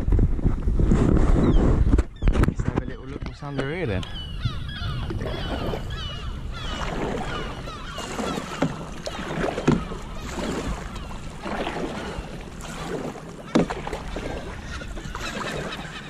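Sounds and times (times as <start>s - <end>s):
paddle splashing in water: 4.8s - 16.0s.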